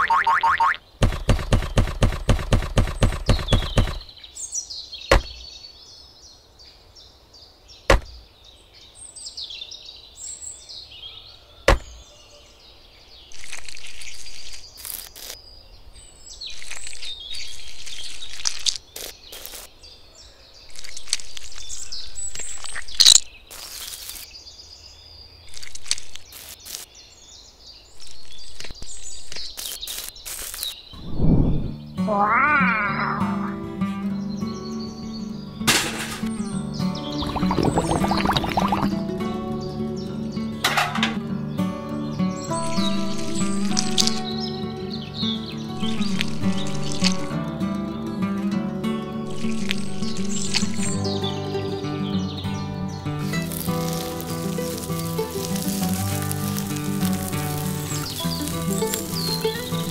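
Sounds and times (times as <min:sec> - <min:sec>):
trowel scraping wet mortar: 0:49.3 - 0:51.1.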